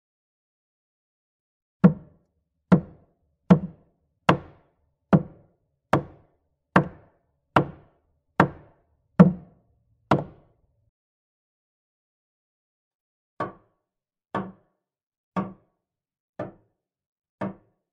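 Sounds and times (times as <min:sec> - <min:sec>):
hammer striking wood: 0:01.8 - 0:02.1, 0:02.7 - 0:04.6, 0:05.2 - 0:10.4.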